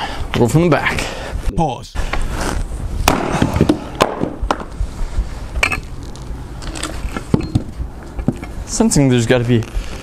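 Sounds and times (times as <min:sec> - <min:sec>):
axe striking wood: 0:03.0 - 0:04.6.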